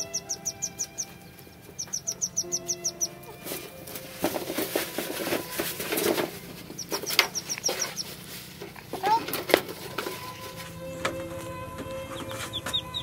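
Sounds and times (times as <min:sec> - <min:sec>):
rapid high chirps: 0:00.0 - 0:03.4, 0:06.7 - 0:08.2
hands rustling plastic string: 0:03.3 - 0:12.6.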